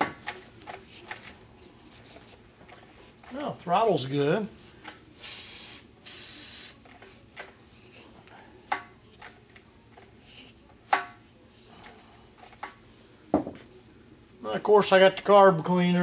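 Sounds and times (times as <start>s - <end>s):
aerosol can hiss: 5.2s - 6.8s.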